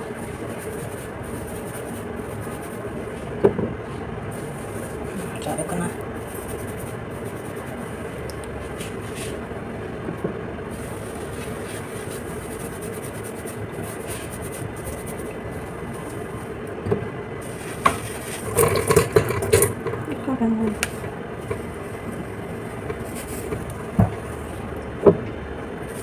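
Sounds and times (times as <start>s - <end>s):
hands scrubbing wet hair: 0.0s - 3.1s.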